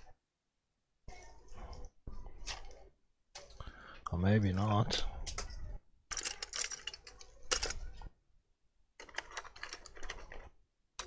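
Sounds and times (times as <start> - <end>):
tools and plastic parts rattling: 4.7 - 8.1, 9.0 - 11.0.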